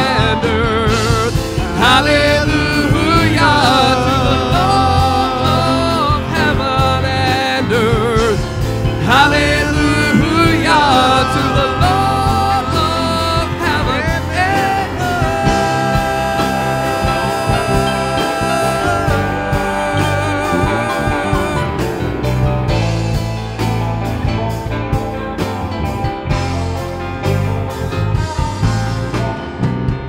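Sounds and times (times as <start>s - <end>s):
singers holding wavering notes: 0.0s - 23.4s
worship band playing: 0.0s - 30.0s.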